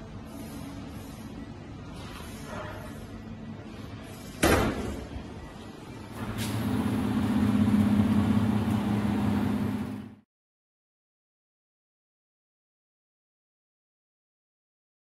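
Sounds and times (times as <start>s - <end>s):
motor humming: 6.2s - 10.2s.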